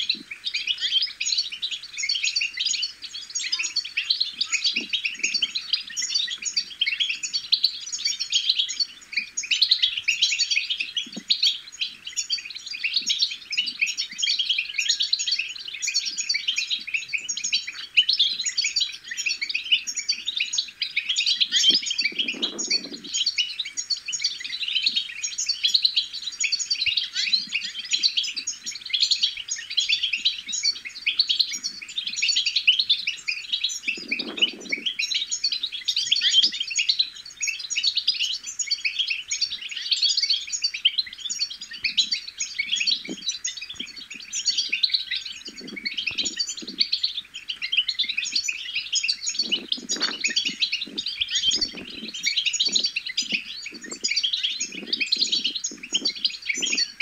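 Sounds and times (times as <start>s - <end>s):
finch twittering: 0.0s - 57.0s.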